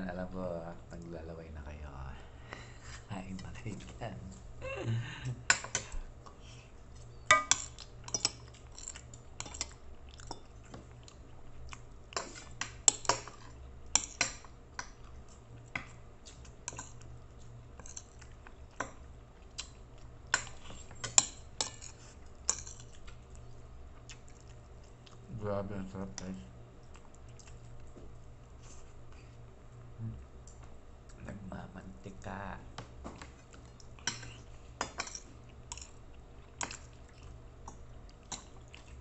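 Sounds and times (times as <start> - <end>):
faint low hum: 0.0 - 39.0
chewing: 5.5 - 13.7, 14.8 - 25.3, 26.2 - 31.2, 33.2 - 39.0
cutlery clinking on a plate: 7.2 - 10.8, 20.3 - 22.9, 34.0 - 35.9.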